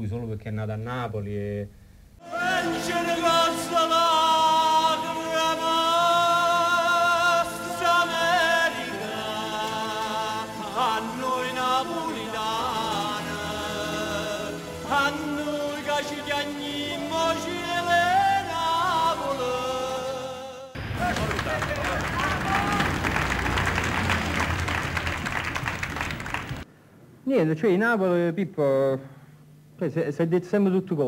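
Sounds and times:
man singing into microphone: 0:02.2 - 0:20.8.

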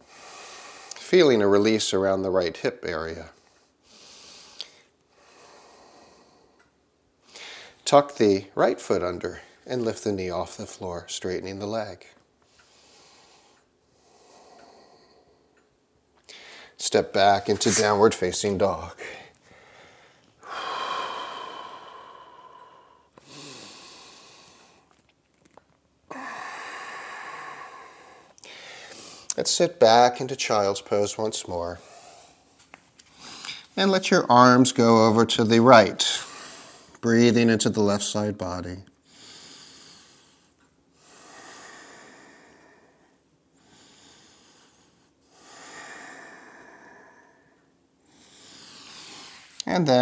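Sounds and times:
man breathing deeply: 0:00.0 - 0:01.0, 0:03.4 - 0:07.8, 0:12.5 - 0:25.0, 0:26.1 - 0:29.4, 0:36.1 - 0:37.0, 0:39.0 - 0:49.6.

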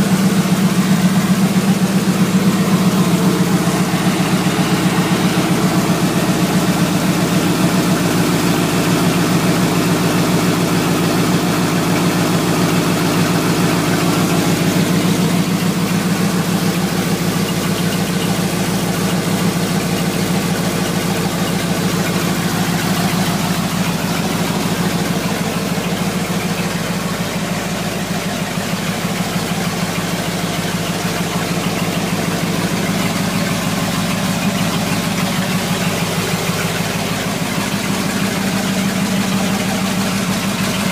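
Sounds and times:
truck engine idling: 0:00.0 - 0:40.9.

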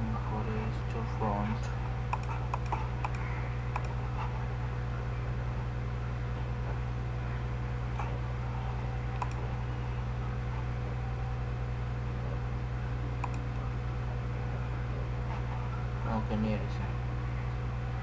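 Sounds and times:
low electrical hum: 0:00.0 - 0:18.0
faint computer mouse clicks: 0:02.1 - 0:04.0, 0:09.2 - 0:09.4.

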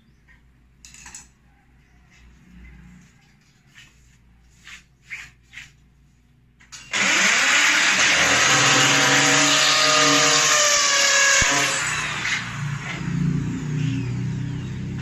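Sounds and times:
power tool whining: 0:06.7 - 0:15.0.

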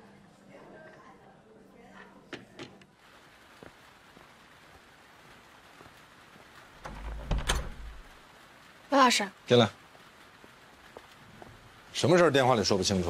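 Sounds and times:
rain hissing: 0:02.9 - 0:13.0
door opening with knocks: 0:06.8 - 0:08.1.

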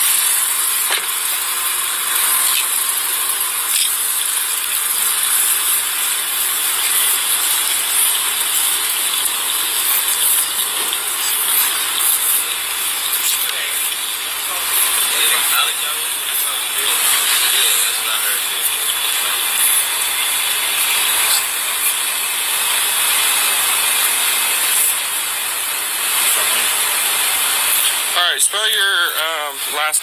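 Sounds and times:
loud steady hiss: 0:00.0 - 0:30.0.

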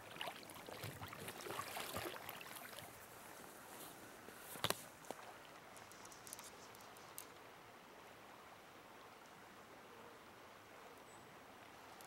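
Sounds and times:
river water flowing: 0:00.0 - 0:06.2.

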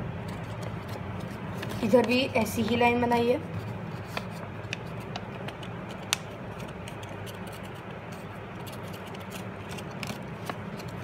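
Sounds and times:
low background hum: 0:00.0 - 0:11.0
paper rustling and creasing: 0:00.3 - 0:11.0.

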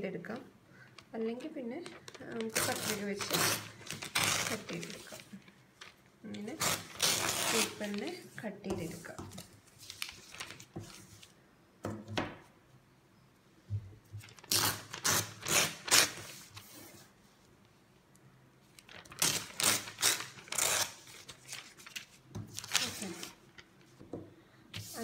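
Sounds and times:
paper rustling: 0:01.4 - 0:06.0, 0:06.7 - 0:11.4, 0:18.7 - 0:24.0
newspaper ripping: 0:01.9 - 0:08.3, 0:14.2 - 0:16.7, 0:18.8 - 0:23.4.

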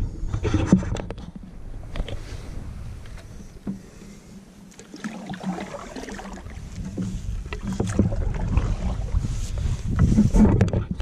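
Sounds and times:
low rumble: 0:00.0 - 0:04.5
water against canoe hull: 0:00.0 - 0:11.0.

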